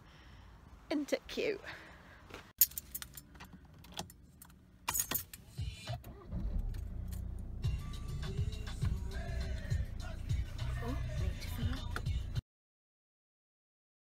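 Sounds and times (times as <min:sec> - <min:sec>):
car keys jangling: 0:02.6 - 0:05.5
car engine starting and running: 0:03.6 - 0:12.4
car door shutting: 0:05.9 - 0:07.1.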